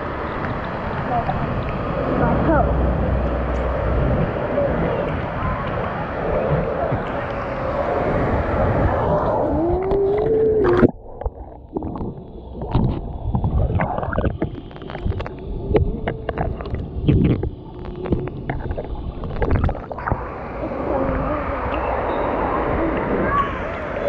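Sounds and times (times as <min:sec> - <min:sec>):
crowd noise: 0:00.0 - 0:10.9, 0:20.0 - 0:24.0
water splashing: 0:00.0 - 0:24.0
underwater bubbles popping: 0:08.9 - 0:22.0.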